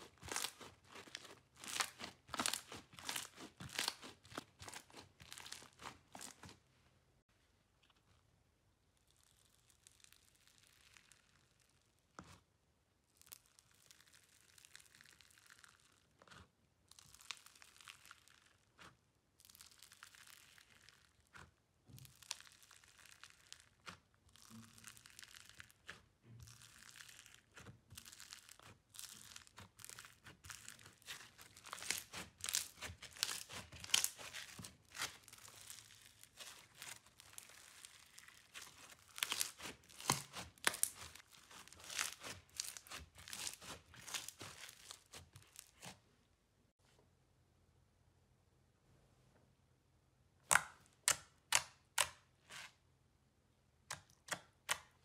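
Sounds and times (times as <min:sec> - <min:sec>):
slime crackling and popping: 0:00.0 - 0:06.6, 0:09.0 - 0:12.4, 0:13.1 - 0:46.0.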